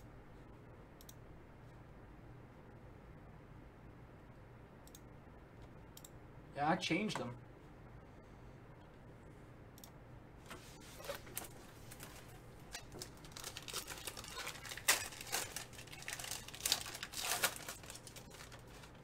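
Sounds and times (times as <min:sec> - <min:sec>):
foil wrapper tearing and crinkling: 0:11.0 - 0:19.0.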